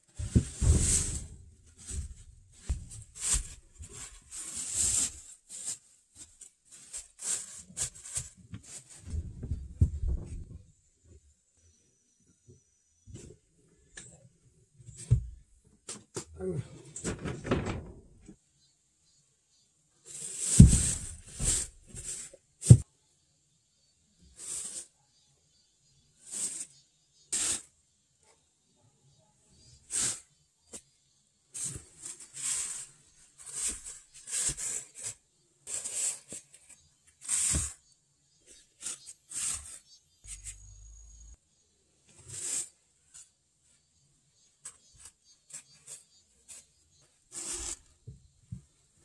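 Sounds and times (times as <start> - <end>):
plastic sheeting rustling: 0.0 - 10.6, 20.1 - 22.8.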